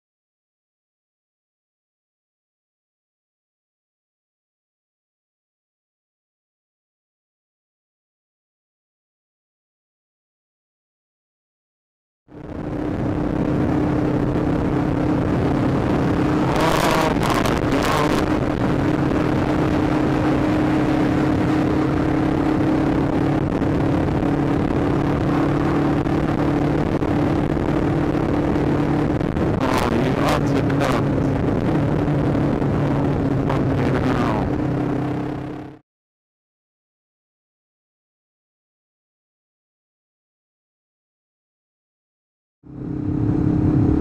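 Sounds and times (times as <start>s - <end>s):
motorcycle engine cruising: 12.3s - 35.8s, 42.7s - 44.0s.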